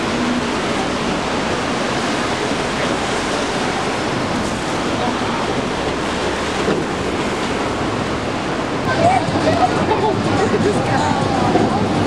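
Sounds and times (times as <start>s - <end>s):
city street ambience: 0.0s - 12.0s.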